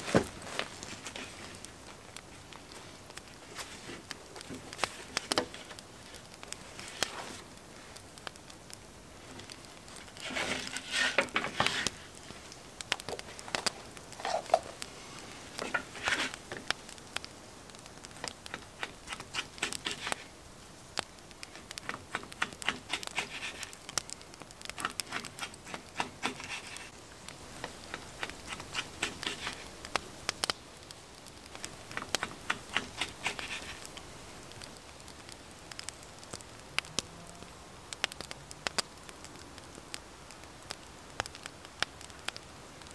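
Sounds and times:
cloth rustling: 0.0 - 8.0.

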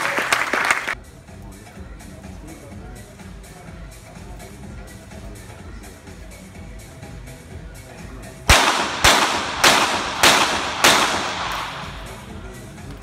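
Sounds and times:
pistol shots with echo: 8.5 - 12.5.

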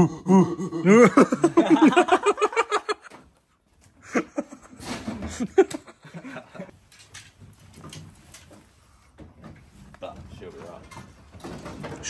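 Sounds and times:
people laughing: 0.0 - 3.1, 4.0 - 6.7.

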